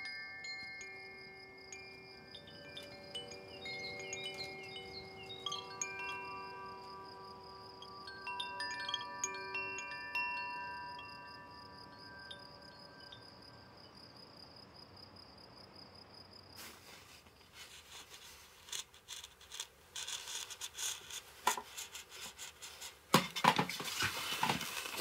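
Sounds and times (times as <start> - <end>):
engraving tool scraping wood: 17.5 - 25.0.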